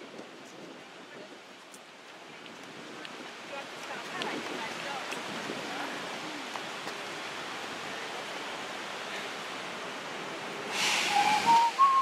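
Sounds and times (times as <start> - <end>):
city ambience hiss: 0.1 - 12.0
louder rush of hiss: 10.6 - 12.0
person whistling a steady note: 10.9 - 12.0.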